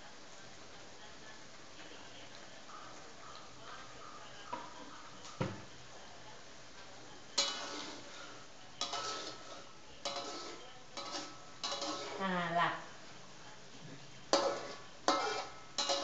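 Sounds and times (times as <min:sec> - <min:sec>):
metal spatula clanking on wok: 0:07.4 - 0:12.2, 0:14.3 - 0:16.0.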